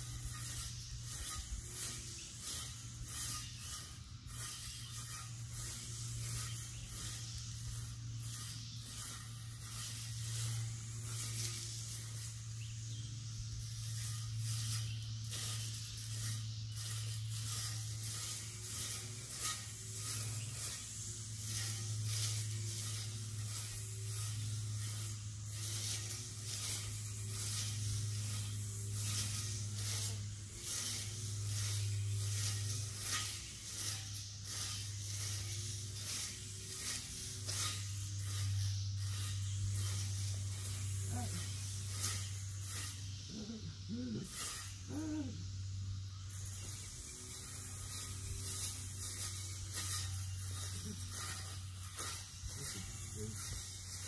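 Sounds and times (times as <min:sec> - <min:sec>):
weed eater running: 0:00.0 - 0:54.0.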